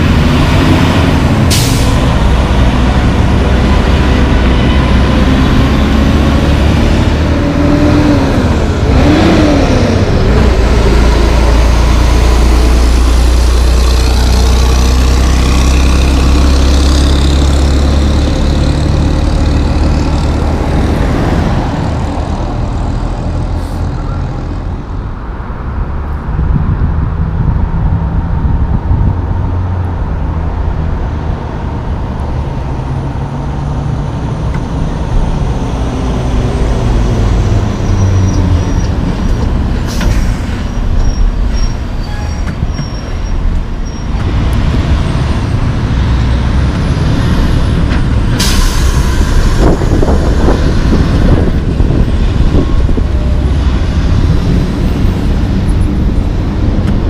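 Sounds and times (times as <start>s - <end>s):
trucks and cars driving past: 0.0s - 57.0s
air brakes hissing: 1.5s - 2.0s, 39.8s - 43.1s, 48.3s - 50.1s.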